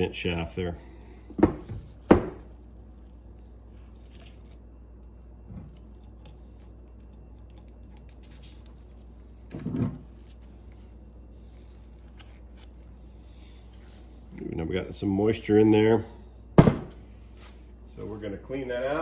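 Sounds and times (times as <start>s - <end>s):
steady low hum: 0.0s - 19.0s
dull thud: 16.6s - 17.0s.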